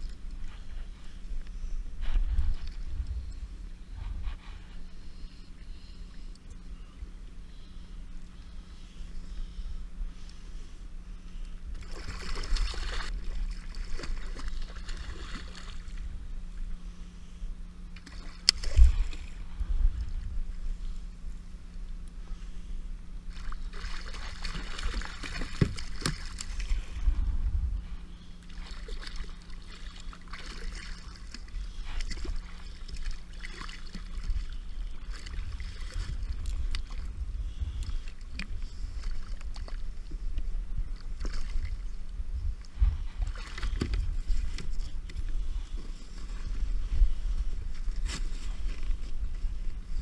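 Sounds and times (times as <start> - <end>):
low uneven rumble: 0.0 - 50.0
water splashing and sloshing: 11.6 - 16.8, 17.9 - 50.0.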